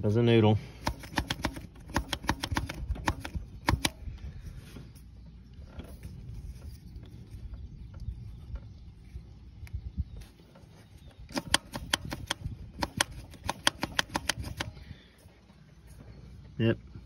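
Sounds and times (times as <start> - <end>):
primer plunger clicking: 0.8 - 4.0, 11.3 - 14.8.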